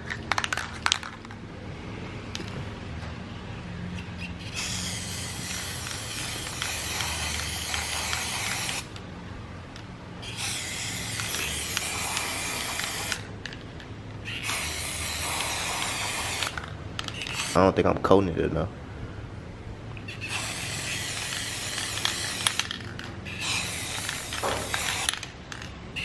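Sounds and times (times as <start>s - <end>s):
aerosol spray can hissing: 4.4s - 8.9s, 10.2s - 13.3s, 14.4s - 16.6s, 17.2s - 17.6s, 20.2s - 25.2s.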